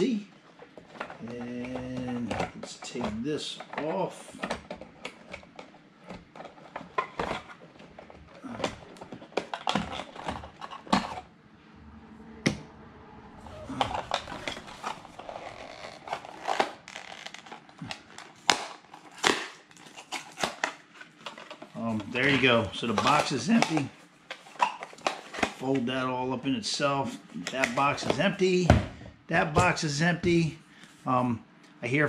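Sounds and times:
cardboard and plastic packaging handled: 0.5s - 11.3s, 13.4s - 25.9s.

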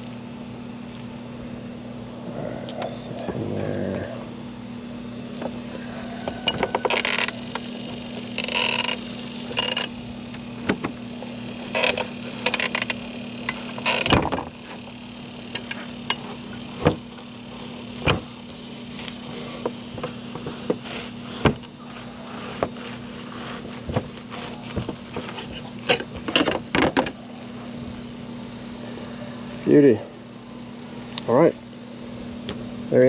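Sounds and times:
steady low hum: 0.0s - 33.0s
knife cutting and scraping: 19.0s - 26.2s.

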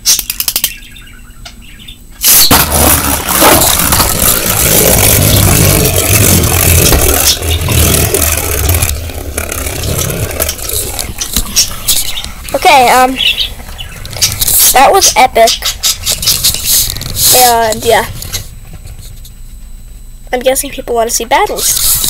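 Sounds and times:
spinning top scraping plastic stadium: 2.2s - 13.1s, 16.0s - 18.4s, 21.5s - 22.0s.

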